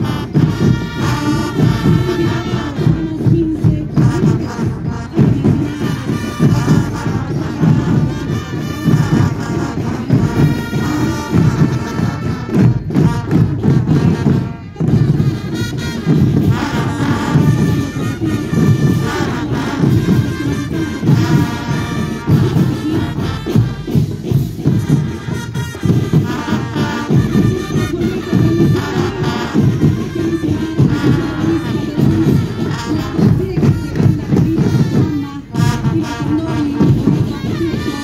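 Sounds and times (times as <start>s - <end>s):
brass melody: 0.0s - 38.0s
marching drum beats: 0.0s - 38.0s.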